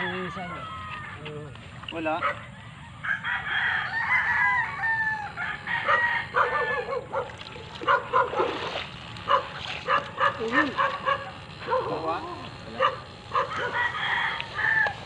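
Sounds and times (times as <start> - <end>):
rooster crowing: 0.0 - 1.5, 2.4 - 7.2, 12.8 - 15.0.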